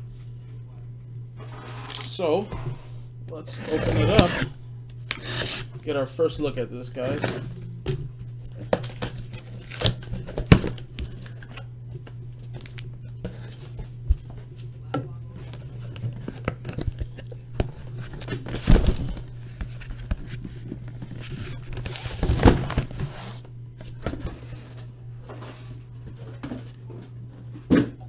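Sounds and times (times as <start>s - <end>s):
steady low hum: 0.0s - 28.0s
cardboard box scraping and knocking: 3.6s - 4.5s
cardboard rustling: 3.6s - 4.5s, 8.6s - 11.6s, 15.4s - 24.8s.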